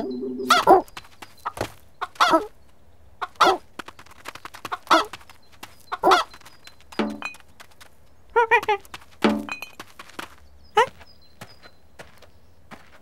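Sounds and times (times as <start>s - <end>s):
hen clucking: 0.0s - 2.5s, 3.2s - 3.6s, 4.6s - 5.2s, 5.9s - 6.3s.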